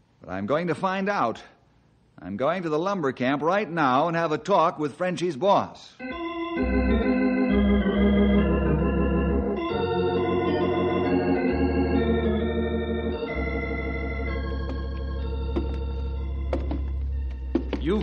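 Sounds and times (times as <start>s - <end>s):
organ playing held chords: 6.0s - 18.0s.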